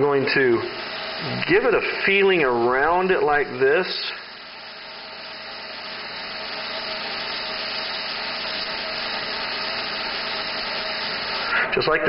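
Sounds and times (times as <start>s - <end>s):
airbrush hissing: 0.0s - 11.7s.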